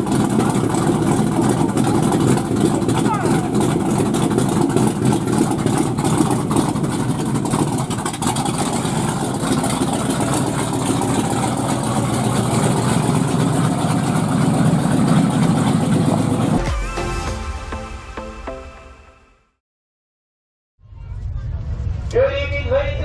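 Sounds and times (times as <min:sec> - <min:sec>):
race car engine idling: 0:00.0 - 0:16.6.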